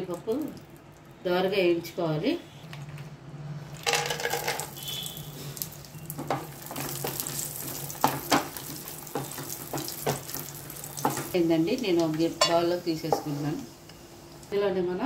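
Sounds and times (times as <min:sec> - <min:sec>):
nuts sizzling in frying pan: 0:03.8 - 0:15.0
spatula knocking on pan: 0:08.0 - 0:10.3.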